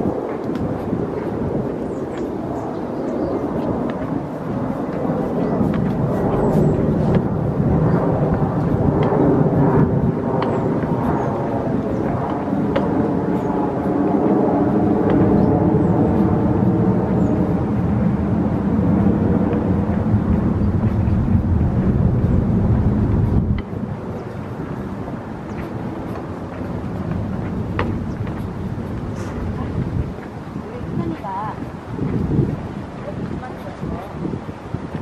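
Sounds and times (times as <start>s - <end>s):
loud low rumble: 0.0s - 33.2s.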